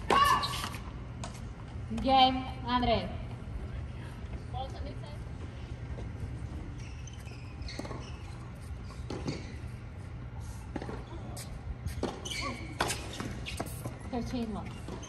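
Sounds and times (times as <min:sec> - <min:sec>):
low background hum: 0:00.0 - 0:15.0
tennis ball bouncing on court: 0:08.9 - 0:09.5.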